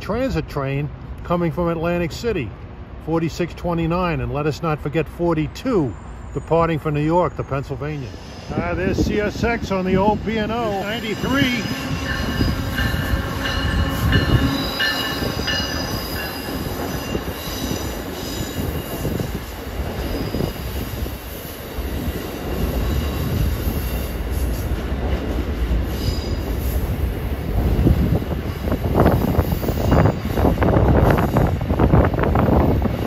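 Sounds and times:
train rumbling over rails: 0:00.0 - 0:33.0
train wheels squealing: 0:05.8 - 0:08.7, 0:10.7 - 0:21.6, 0:22.6 - 0:24.6, 0:25.8 - 0:26.9.

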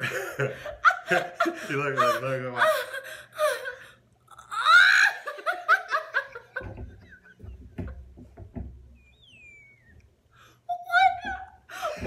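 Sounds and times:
man and woman laughing: 0:00.0 - 0:04.0, 0:04.8 - 0:08.1
squeal sliding down in pitch: 0:08.9 - 0:10.1.

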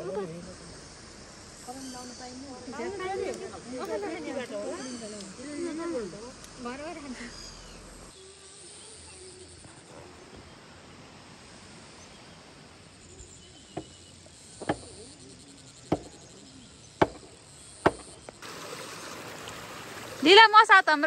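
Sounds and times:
paddy field ambience: 0:00.0 - 0:21.0
sharp knocks: 0:14.6 - 0:14.9, 0:15.9 - 0:16.2, 0:17.0 - 0:18.4.

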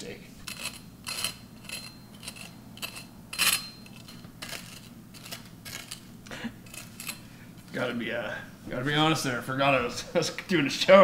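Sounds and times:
knife scraping on metal pan: 0:00.4 - 0:07.7.

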